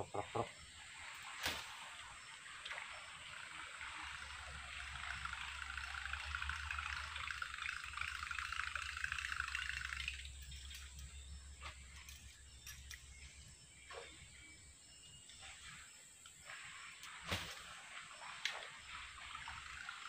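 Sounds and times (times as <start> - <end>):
lure buzzing across water: 0.0 - 10.9.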